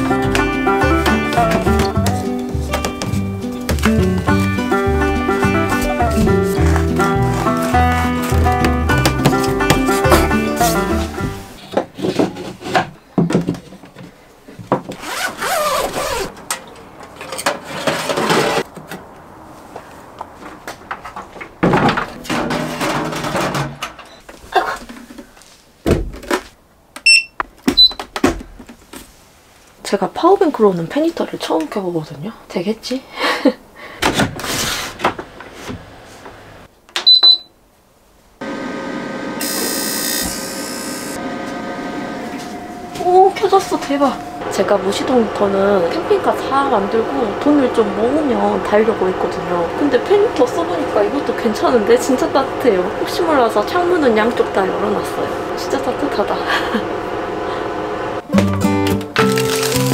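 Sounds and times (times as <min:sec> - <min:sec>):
short electronic beep: 0:27.1 - 0:28.0, 0:37.1 - 0:37.5
fan heater humming: 0:38.4 - 0:58.3.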